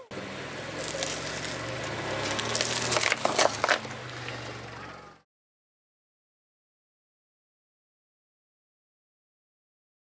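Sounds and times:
low engine hum: 0:00.0 - 0:05.2
tyre crushing cane stalks: 0:00.7 - 0:04.4.

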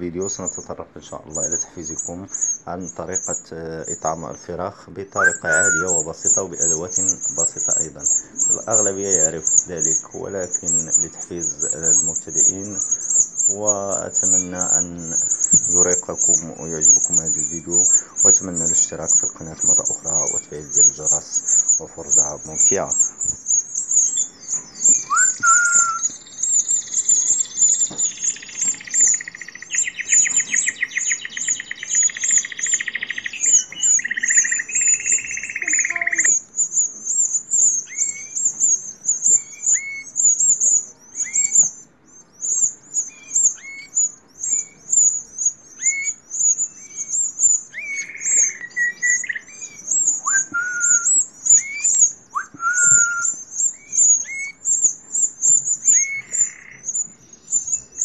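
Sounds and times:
chicks cheeping: 0:00.0 - 0:58.0
rising chirps and whistles: 0:00.3 - 0:04.4, 0:05.1 - 0:58.0
buzzy rasping call: 0:05.2 - 0:24.2, 0:26.8 - 0:36.4.

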